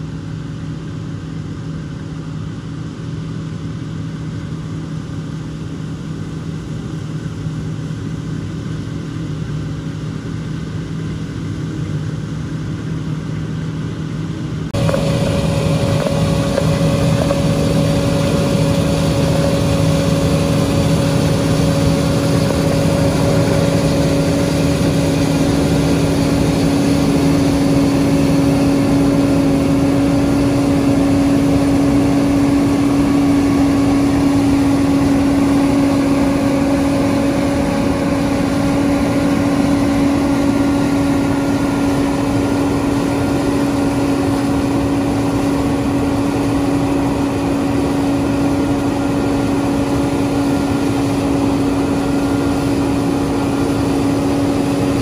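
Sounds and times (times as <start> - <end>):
combine harvester engine drone: 0.0 - 55.0.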